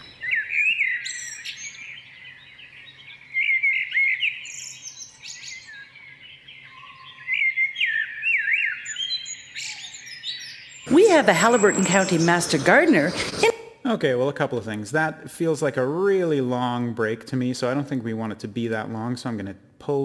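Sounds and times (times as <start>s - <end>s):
birds chirping and trilling: 0.0s - 13.4s.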